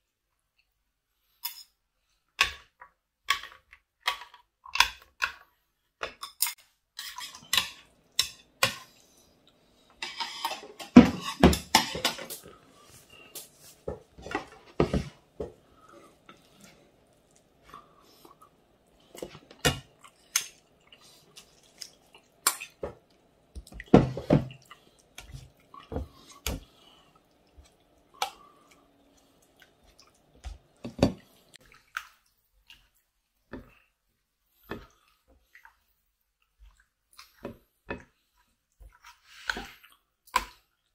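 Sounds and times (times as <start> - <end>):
broth dripping and splashing: 16.2 - 33.2.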